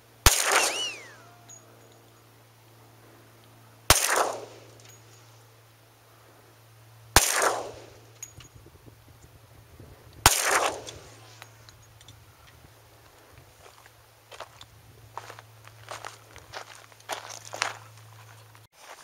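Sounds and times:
pistol shots: 0.2 - 1.3, 3.9 - 4.8, 7.2 - 8.0, 10.2 - 11.1.

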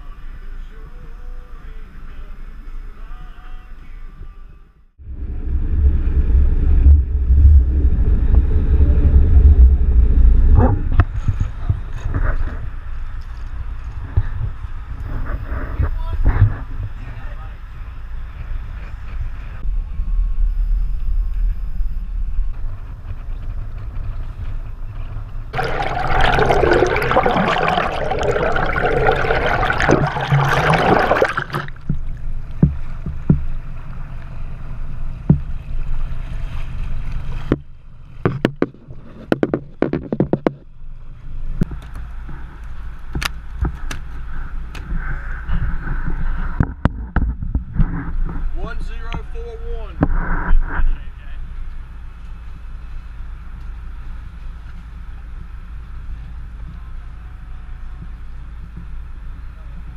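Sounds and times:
loud splashing water: 25.6 - 32.3
water rushing: 25.6 - 32.4
boat engine running: 25.6 - 36.4.

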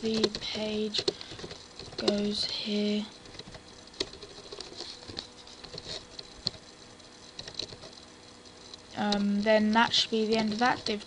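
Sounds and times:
keyboard keys tapping: 0.0 - 6.7.

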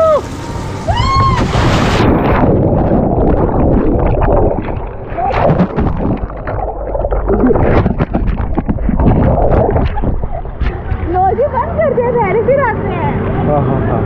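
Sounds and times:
muffled underwater rumble: 0.9 - 11.5
water splash: 1.2 - 11.2
bubbling and crackling water: 1.6 - 11.2.

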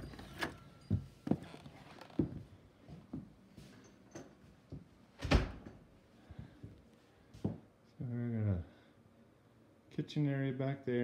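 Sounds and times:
footsteps in a house: 0.0 - 7.7.

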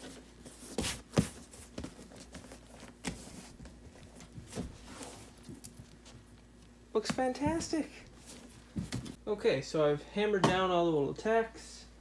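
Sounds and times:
hands brushing and patting vinyl: 0.0 - 9.2
rustling: 0.0 - 9.2.

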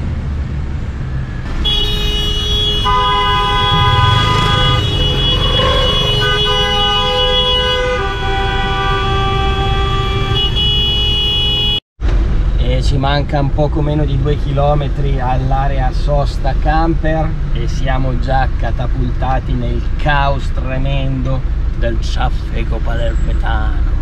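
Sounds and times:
van engine rumble: 0.0 - 10.4, 12.0 - 24.0
road noise: 0.0 - 24.0
car horns blasting: 1.5 - 11.8.

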